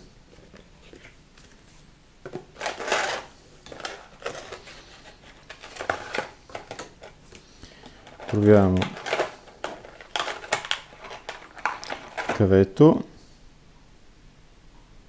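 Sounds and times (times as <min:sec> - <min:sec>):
paper rustling: 0:00.4 - 0:07.2, 0:07.9 - 0:12.6
plastic tray crinkling and clicking: 0:02.3 - 0:04.6, 0:05.3 - 0:07.2, 0:07.9 - 0:12.5.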